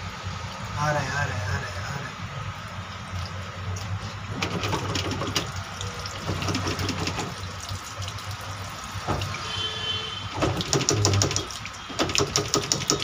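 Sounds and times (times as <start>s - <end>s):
dirty water gushing from drain: 2.2s - 13.0s
water splashing on tiled floor: 2.7s - 13.0s.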